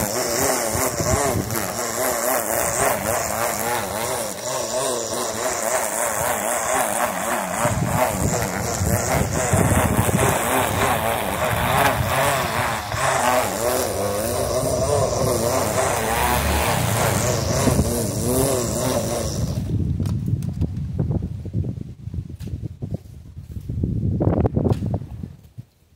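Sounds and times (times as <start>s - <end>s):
string trimmer cutting grass: 0.0s - 20.6s.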